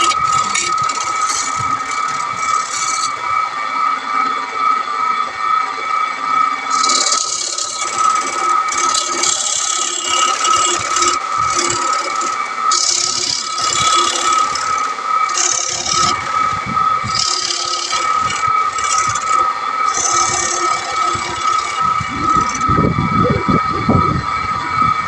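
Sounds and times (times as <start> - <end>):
gouge scraping wood: 0.0 - 3.1, 6.7 - 16.4, 17.1 - 22.7
wood lathe whine: 0.0 - 25.0.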